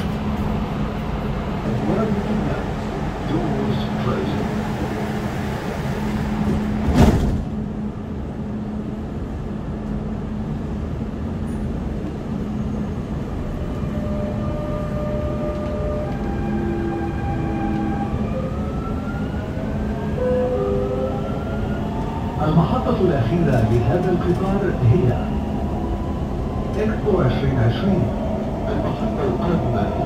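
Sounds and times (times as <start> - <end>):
train carriage hum: 0.0 - 30.0
sharp thud: 6.9 - 7.5.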